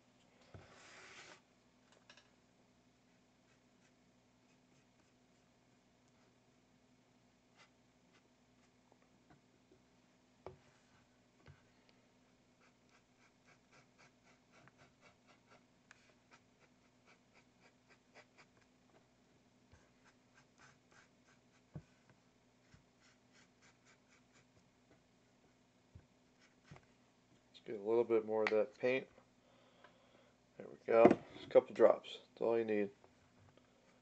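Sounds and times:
low steady hum: 0:00.0 - 0:34.0
paintbrush strokes on canvas: 0:00.6 - 0:01.4, 0:12.6 - 0:18.6, 0:19.8 - 0:24.6.

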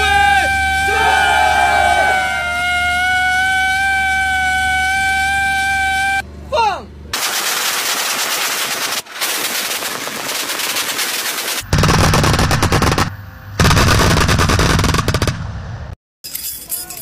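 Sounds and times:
siren-like alarm tone: 0:00.0 - 0:06.2
anti-aircraft cannon rapid fire: 0:07.2 - 0:16.0.

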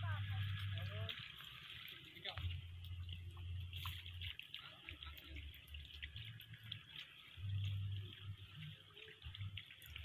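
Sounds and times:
drips on shallow water: 0:00.0 - 0:10.0.

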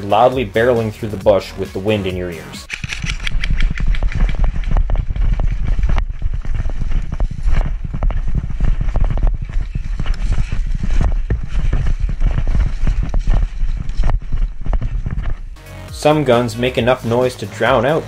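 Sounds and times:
running footfalls: 0:02.6 - 0:15.6
wind on microphone: 0:02.7 - 0:15.6
rustling undergrowth: 0:03.0 - 0:15.6.

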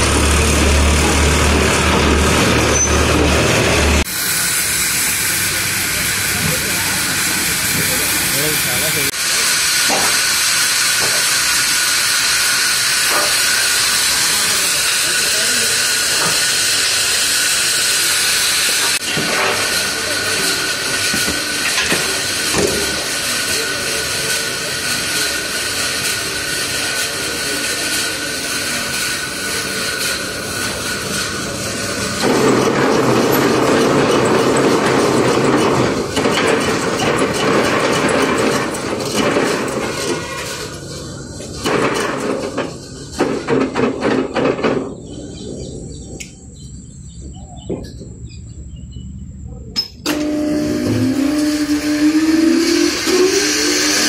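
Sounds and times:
band saw whirring: 0:00.0 - 0:43.8, 0:50.0 - 0:54.0
faint chirps: 0:45.0 - 0:50.0
machine motor humming loudly: 0:50.1 - 0:54.0.

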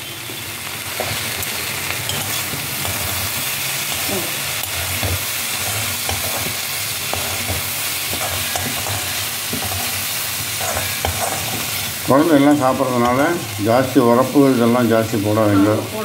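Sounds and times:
okra sizzling in oil: 0:00.0 - 0:16.0
spatula scraping a pan: 0:02.0 - 0:13.6.

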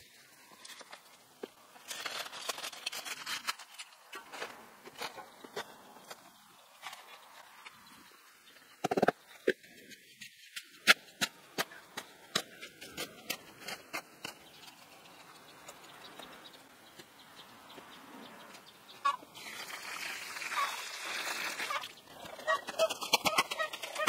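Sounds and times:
water pouring from hose: 0:19.4 - 0:21.9.

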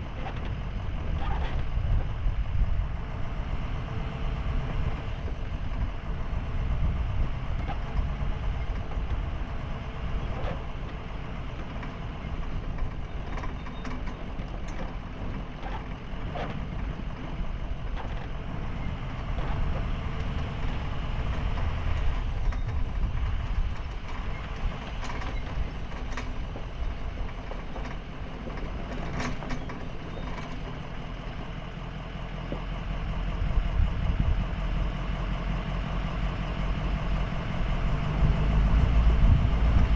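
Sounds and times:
van engine and tyre rumble: 0:00.0 - 0:39.9.

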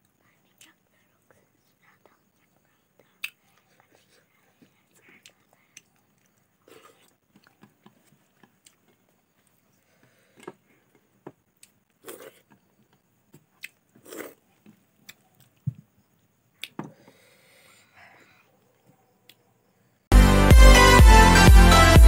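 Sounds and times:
chewing and mouth smacks: 0:04.6 - 0:09.6, 0:13.4 - 0:15.7.

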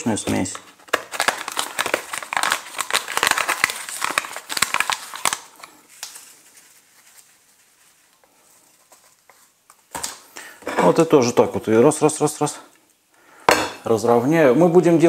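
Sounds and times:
breadcrumbs rustling crackle: 0:00.0 - 0:10.2.

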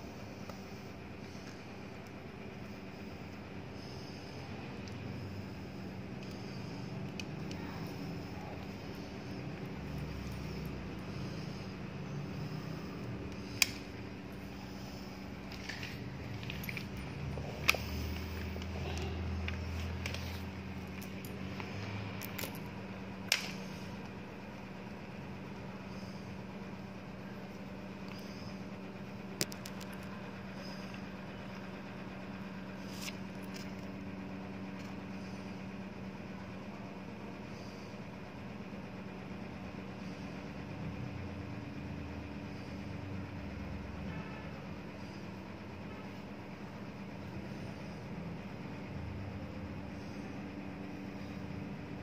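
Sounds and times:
steady low hum: 0:00.0 - 0:52.0
sharp clicks: 0:13.3 - 0:13.9.

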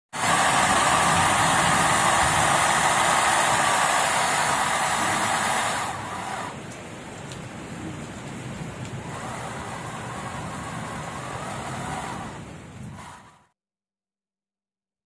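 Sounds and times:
small electric pump motor whining: 0:00.2 - 0:06.7, 0:09.0 - 0:13.5.

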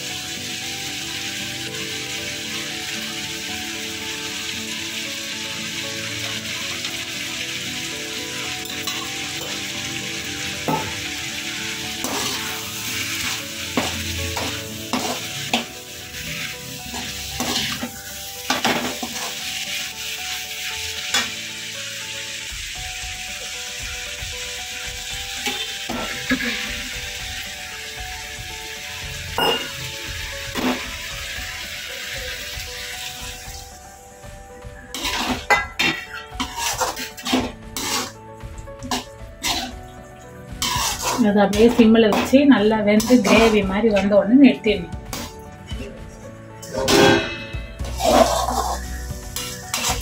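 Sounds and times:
vegetables sizzling in oil: 0:00.0 - 0:45.5, 0:46.6 - 0:50.0
metal spatula scraping and clinking: 0:12.0 - 0:12.6, 0:13.2 - 0:15.7, 0:16.9 - 0:17.9, 0:34.9 - 0:38.2, 0:38.9 - 0:39.8, 0:40.6 - 0:42.3, 0:46.6 - 0:48.8.

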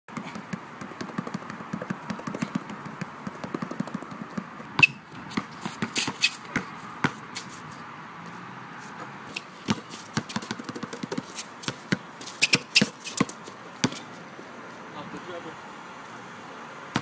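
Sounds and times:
basketball dribbling: 0:00.1 - 0:07.2, 0:09.0 - 0:14.0.

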